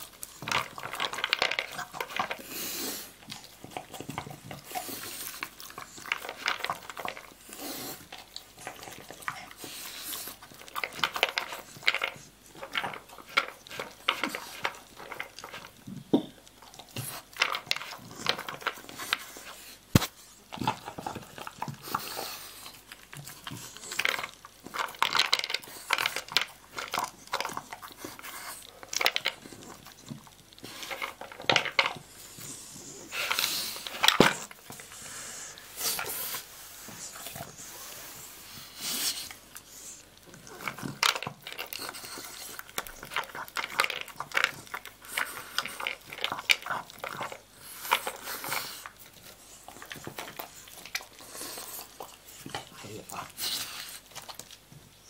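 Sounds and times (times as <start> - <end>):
kibble rattling in plastic bowl: 0.0 - 2.5, 3.2 - 19.4, 22.8 - 32.2, 40.3 - 53.5
dog crunching kibble: 0.0 - 55.0.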